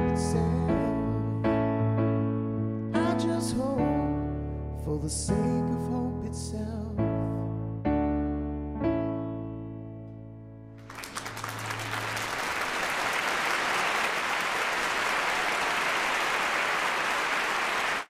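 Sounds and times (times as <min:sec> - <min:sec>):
applause: 0:10.8 - 0:18.0.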